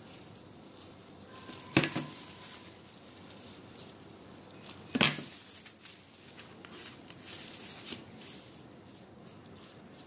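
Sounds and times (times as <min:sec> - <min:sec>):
kitchenware clinking on hard surface: 0:01.3 - 0:02.6, 0:04.9 - 0:05.4.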